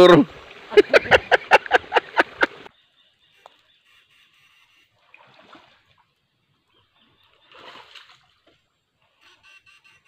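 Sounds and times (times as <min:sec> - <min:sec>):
stream water splashing: 0:00.0 - 0:02.7, 0:04.9 - 0:09.2.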